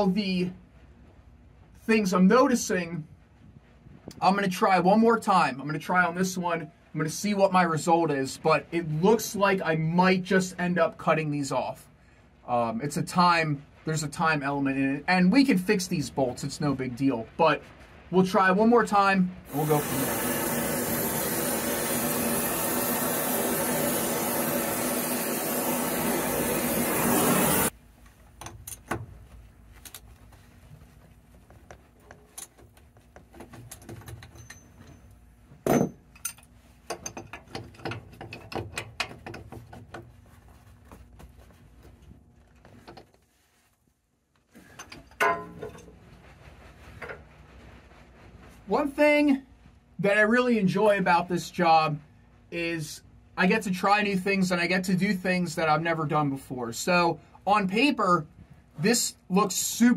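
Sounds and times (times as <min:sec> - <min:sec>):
heating torch hissing: 0:19.5 - 0:27.8
tools clinking on metal: 0:33.6 - 0:39.4, 0:44.8 - 0:45.9.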